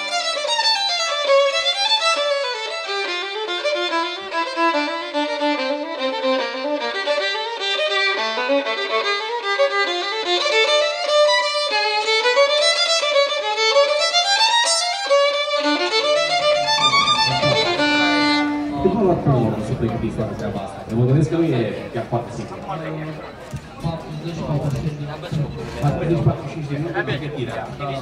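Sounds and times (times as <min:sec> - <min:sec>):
quick violin melody: 0:00.0 - 0:20.6.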